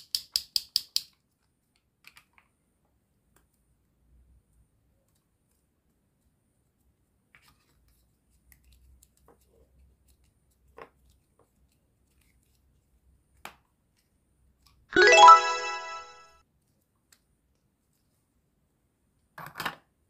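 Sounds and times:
bright burst of ringing music: 15.0 - 16.3.

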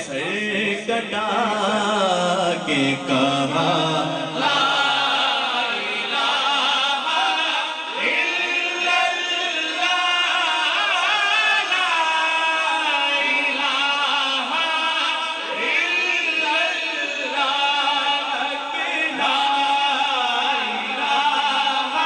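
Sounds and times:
man singing into a microphone: 0.0 - 22.0.

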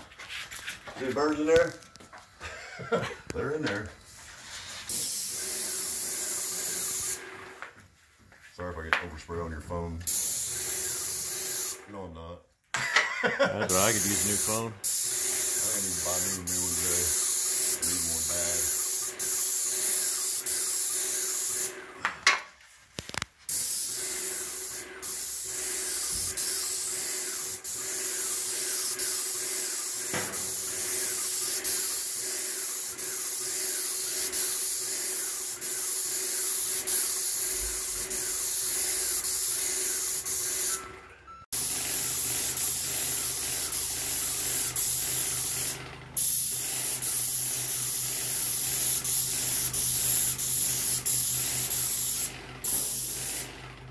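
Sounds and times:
paint spray gun hissing: 3.9 - 7.4, 10.0 - 11.8, 13.7 - 21.8, 23.5 - 40.8, 41.6 - 53.6.

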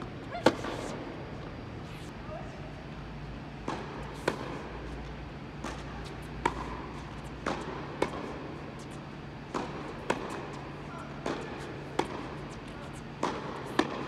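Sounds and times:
tennis racket hitting ball: 0.0 - 1.1, 3.6 - 14.0
steady low hum: 0.0 - 14.0
ball bouncing on hard court: 3.6 - 4.6, 5.6 - 14.0.

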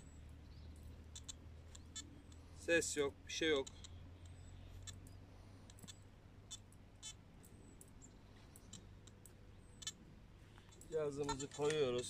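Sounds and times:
faint clicks: 3.5 - 11.9.

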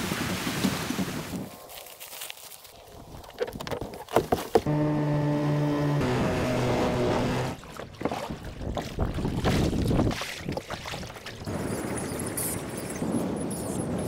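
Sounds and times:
outboard motor humming: 4.5 - 9.8
wind buffeting microphone: 8.3 - 14.0.

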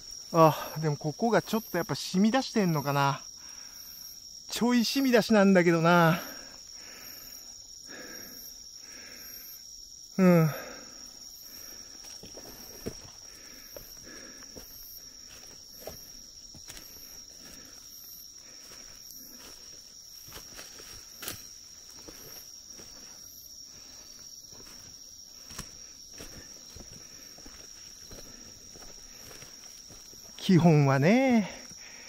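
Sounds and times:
insect chirps: 0.0 - 32.0
insect continuous high trill: 0.0 - 32.0
footsteps on forest floor: 11.5 - 31.0.

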